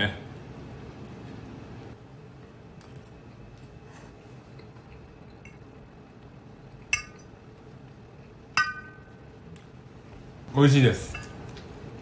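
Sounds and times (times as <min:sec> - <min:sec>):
metal fork clinking on dish: 0:08.6 - 0:09.1, 0:11.0 - 0:11.4.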